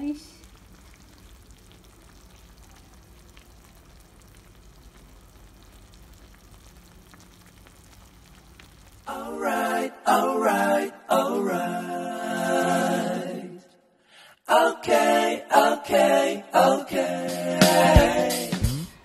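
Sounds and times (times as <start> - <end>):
soup bubbling in a pot: 0.4 - 9.1
person singing: 14.5 - 19.0.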